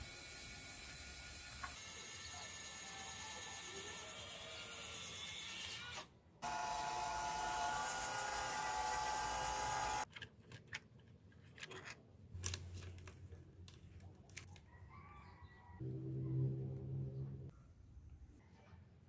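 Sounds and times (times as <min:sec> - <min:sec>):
small electric motor whining: 0:00.0 - 0:10.1.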